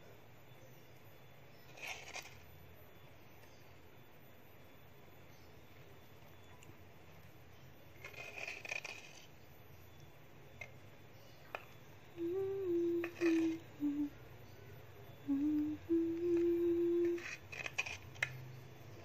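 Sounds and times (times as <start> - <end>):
metal spoon scraping clay bowl: 8.0 - 9.3, 13.0 - 13.6, 17.1 - 18.3
person humming: 12.2 - 14.3, 15.2 - 17.4.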